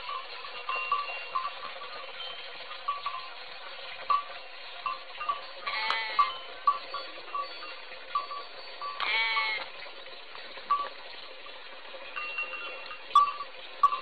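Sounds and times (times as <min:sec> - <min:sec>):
goat bleating: 0:05.7 - 0:06.3, 0:09.0 - 0:09.7.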